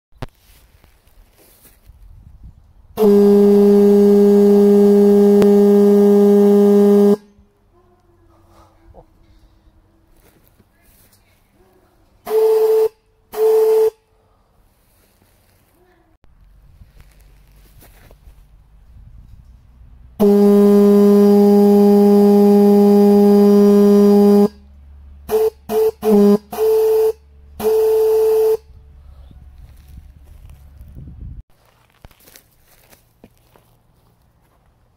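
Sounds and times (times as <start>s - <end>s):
air horn blast: 3.0s - 7.5s, 12.2s - 14.1s, 20.2s - 29.5s.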